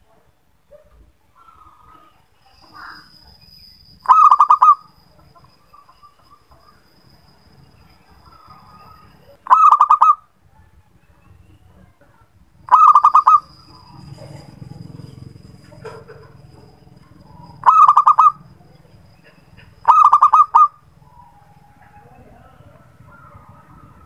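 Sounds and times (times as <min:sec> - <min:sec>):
thin steady high tone: 0:01.4 - 0:24.0
dove cooing: 0:04.0 - 0:04.9, 0:08.4 - 0:10.2, 0:12.7 - 0:16.4, 0:17.3 - 0:18.5, 0:19.2 - 0:24.0.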